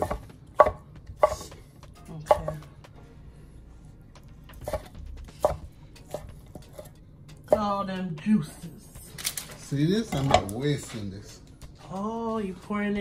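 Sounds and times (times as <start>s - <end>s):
utensils clinking on cookware: 10.1s - 11.1s.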